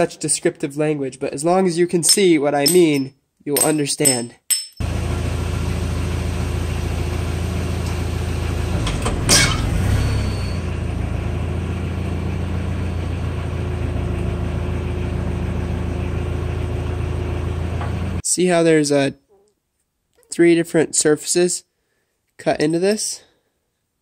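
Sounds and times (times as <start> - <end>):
diesel engine idling: 4.8 - 18.2
loud metal clank: 9.0 - 10.8.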